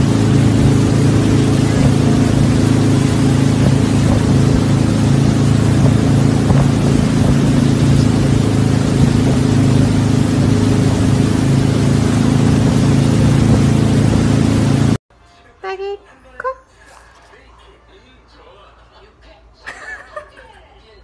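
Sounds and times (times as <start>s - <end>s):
engine drone with hiss: 0.0s - 15.0s.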